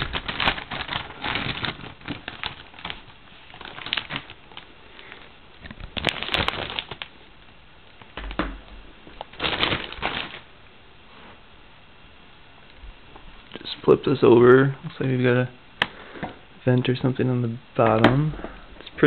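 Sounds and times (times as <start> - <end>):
plastic wrapping crinkling: 0.0 - 10.5.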